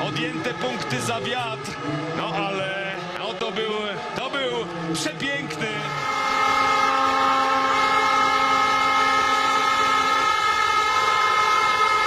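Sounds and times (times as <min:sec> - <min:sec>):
crowd noise: 0:00.0 - 0:12.0
fans' horns blowing in chorus: 0:00.0 - 0:12.0.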